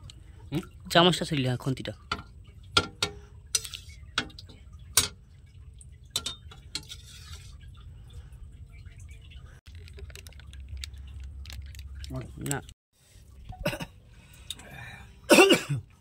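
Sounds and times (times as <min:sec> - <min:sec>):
metal spoon clinking and scraping: 0:02.8 - 0:05.2, 0:06.2 - 0:07.6.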